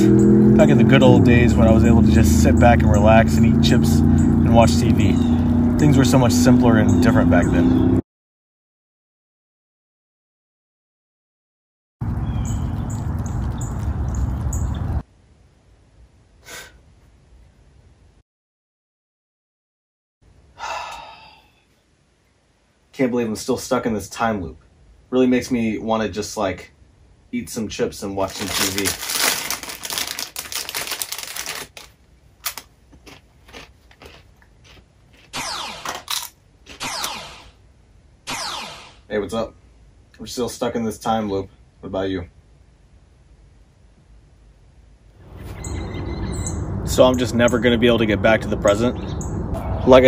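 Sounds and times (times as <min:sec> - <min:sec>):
bird chirping: 0:05.0 - 0:05.6, 0:12.0 - 0:15.0, 0:45.2 - 0:47.8, 0:48.6 - 0:50.0
man's sharp intake of breath: 0:16.4 - 0:16.8, 0:20.6 - 0:21.6
foil chip bag crinkling: 0:28.2 - 0:35.3
faint crunches of chips eaten: 0:28.2 - 0:35.4.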